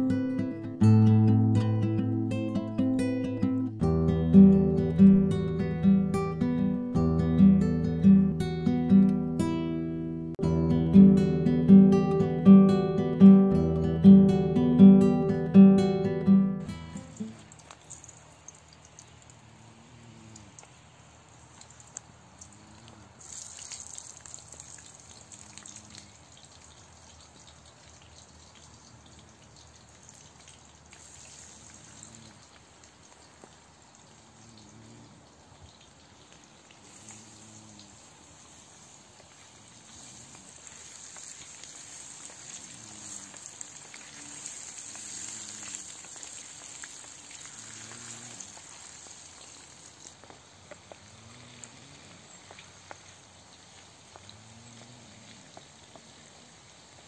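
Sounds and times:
potatoes sizzling in hot oil: 23.1 - 57.0.

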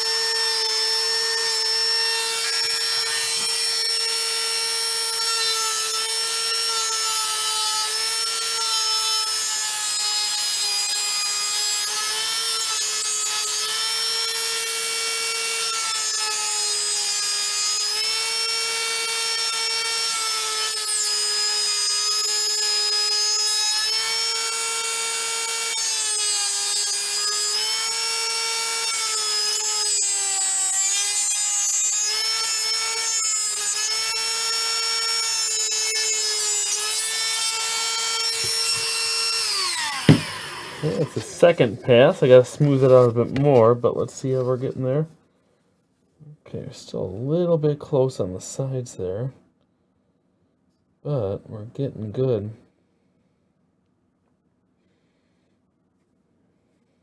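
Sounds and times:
rotary tool whining: 0.0 - 43.4.

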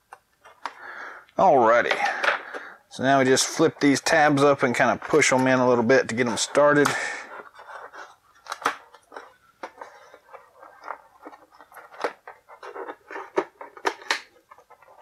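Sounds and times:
plastic clicking against cardboard: 6.4 - 15.0.

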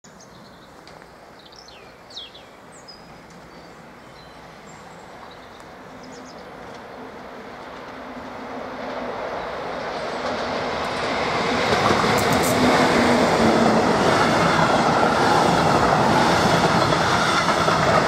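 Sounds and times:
birds chirping: 0.1 - 7.2
train rumbling on rails: 0.6 - 18.0.

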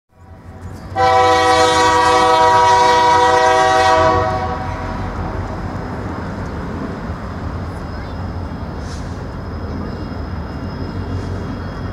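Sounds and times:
locomotive air horn blast: 1.0 - 5.1.

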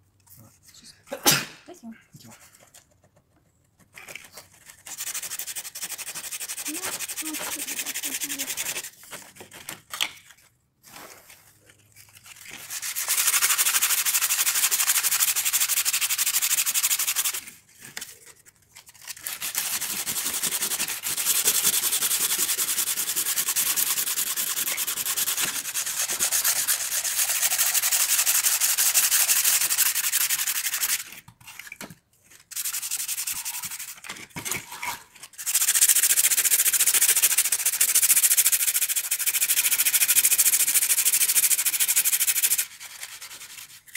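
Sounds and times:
sandpaper scratching wood: 4.2 - 9.8, 12.2 - 31.2, 32.4 - 34.2, 35.2 - 43.9.

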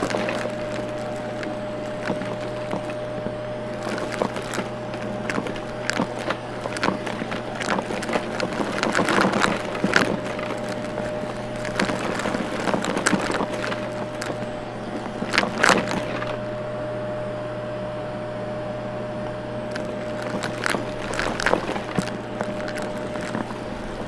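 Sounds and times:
debris crackling through nozzle: 0.0 - 16.5, 19.7 - 24.0
vacuum cleaner motor hum: 0.0 - 24.0.

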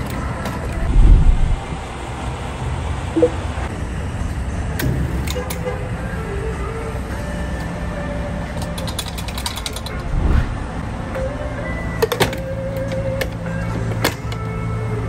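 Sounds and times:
steady low hum: 0.8 - 2.2, 9.9 - 11.1.

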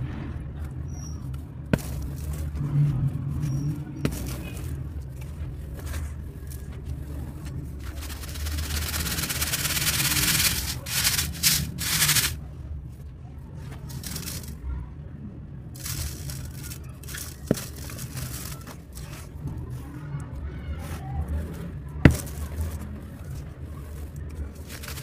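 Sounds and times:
cement crumbling: 1.7 - 2.6, 4.0 - 4.9, 7.8 - 12.4, 15.8 - 19.3, 22.0 - 23.5
cement chunks snapping: 4.0 - 4.9, 22.0 - 22.9.

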